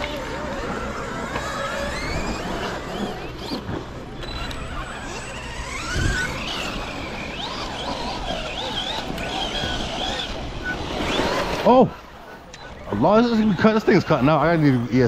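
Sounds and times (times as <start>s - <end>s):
rc truck electric motors whining: 0.0s - 15.0s
wind noise: 5.4s - 11.6s.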